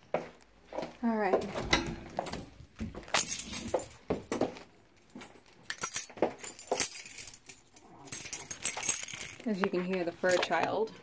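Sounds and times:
metal jingling: 2.2s - 9.6s.

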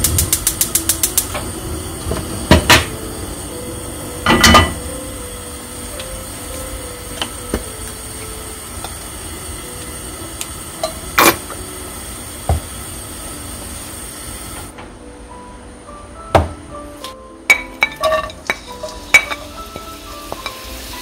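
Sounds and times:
utensils clicking and knocking: 0.0s - 1.4s
kitchen hiss: 0.0s - 14.7s, 17.7s - 21.0s.

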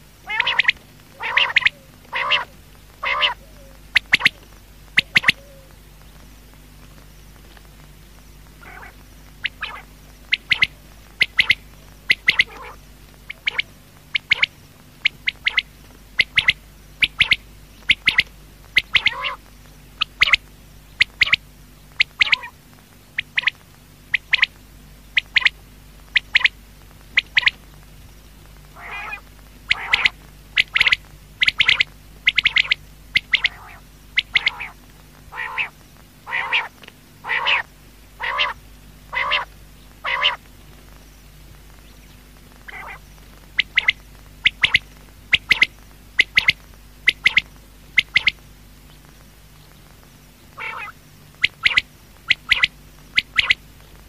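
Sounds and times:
faint steady hum: 0.0s - 54.0s
quail calling: 0.2s - 5.8s, 8.6s - 20.4s, 21.0s - 22.6s, 23.2s - 24.5s, 25.2s - 26.6s, 27.2s - 27.6s, 28.7s - 40.4s, 42.6s - 48.4s, 50.5s - 53.6s.

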